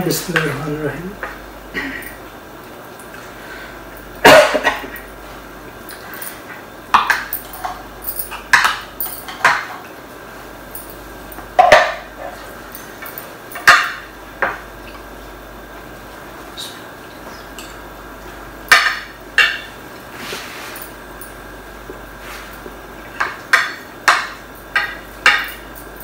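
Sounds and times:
spoons clinking on plates: 0:05.9 - 0:09.9, 0:11.6 - 0:14.1, 0:22.4 - 0:25.9.

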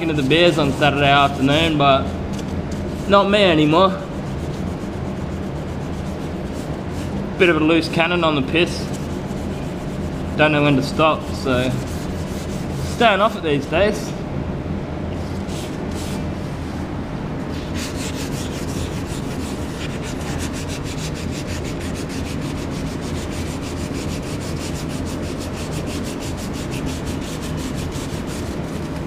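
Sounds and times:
sanding sponge rubbing painted metal: 0:00.1 - 0:01.8, 0:02.8 - 0:07.2, 0:08.6 - 0:13.4, 0:17.5 - 0:29.0
low hum: 0:04.0 - 0:28.8.

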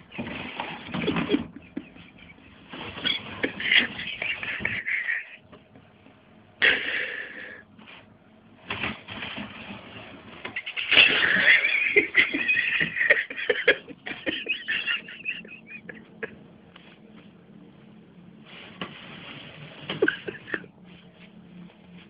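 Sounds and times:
cardboard box scraping on floor: 0:18.4 - 0:20.4.

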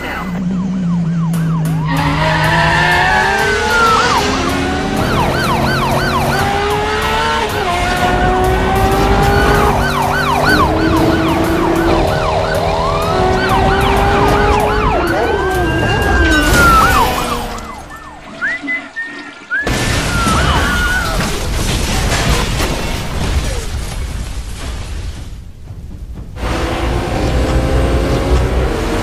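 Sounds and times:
car engine revving: 0:00.0 - 0:19.7, 0:26.4 - 0:29.0
police sirens wailing: 0:00.0 - 0:21.7.

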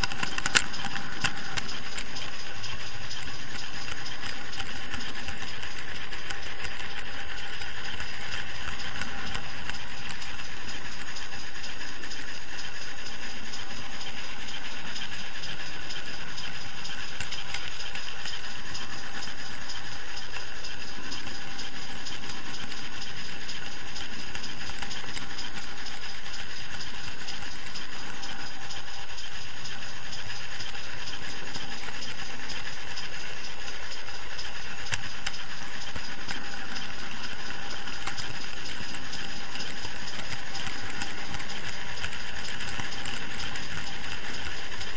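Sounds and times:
model train wheels rattling on rails: 0:00.0 - 0:44.9
steady whine: 0:00.0 - 0:44.9.

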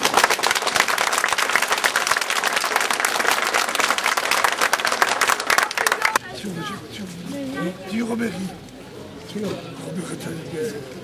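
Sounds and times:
large crowd clapping: 0:00.0 - 0:06.2.

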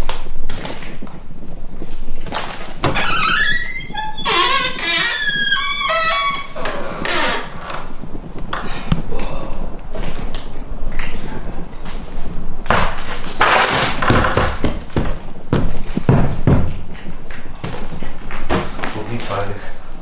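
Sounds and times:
footsteps on wooden floorboards: 0:14.0 - 0:19.0.

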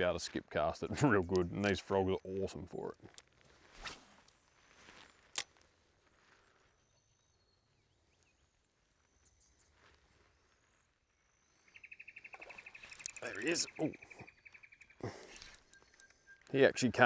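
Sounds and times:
fishing rod swish: 0:03.6 - 0:04.4
faint bird chirps: 0:06.5 - 0:17.0.

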